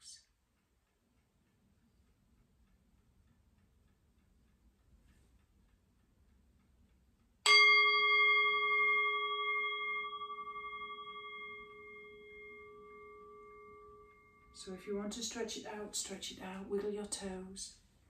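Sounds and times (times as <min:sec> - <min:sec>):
meditation bell ringing: 0:07.4 - 0:14.9.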